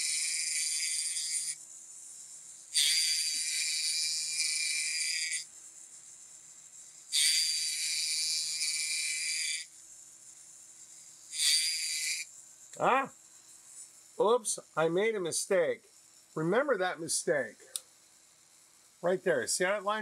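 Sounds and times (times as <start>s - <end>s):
electric tool buzzing rasp on wood: 0.0s - 12.3s.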